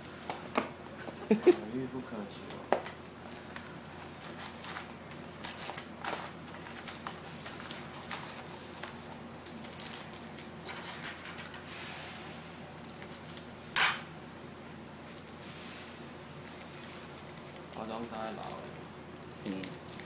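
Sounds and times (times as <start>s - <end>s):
foil wrappers crinkling: 3.2s - 11.6s, 12.8s - 13.6s, 14.6s - 20.0s.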